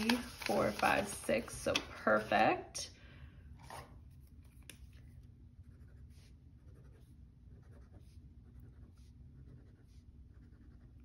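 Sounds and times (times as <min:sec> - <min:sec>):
pen scratching on paper: 0:05.6 - 0:11.0.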